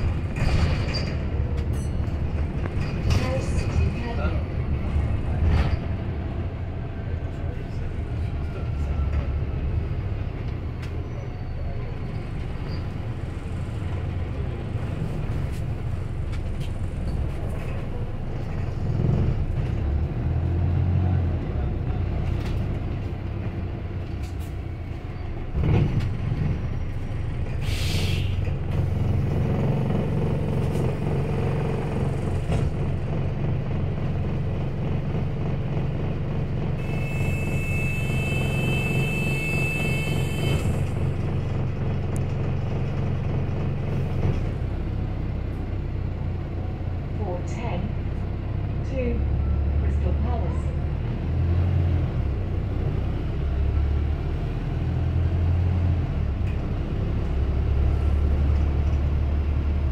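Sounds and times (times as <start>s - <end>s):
bus engine droning: 0.0s - 59.9s
air brake hiss: 27.6s - 28.4s.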